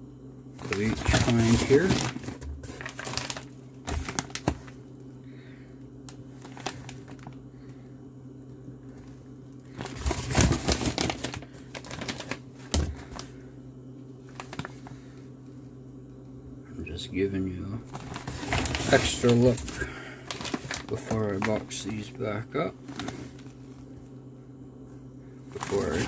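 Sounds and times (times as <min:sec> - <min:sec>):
low background hum: 0:00.0 - 0:26.0
plastic bags crinkling: 0:00.6 - 0:04.8, 0:06.3 - 0:07.4, 0:09.7 - 0:13.4, 0:14.3 - 0:15.1, 0:17.8 - 0:24.0, 0:25.5 - 0:26.0.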